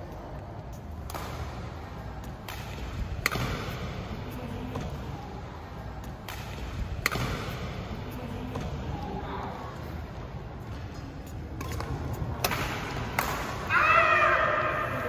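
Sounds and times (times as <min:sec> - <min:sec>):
racket hitting shuttlecock: 0:01.0 - 0:04.1, 0:06.0 - 0:07.9, 0:11.6 - 0:13.8.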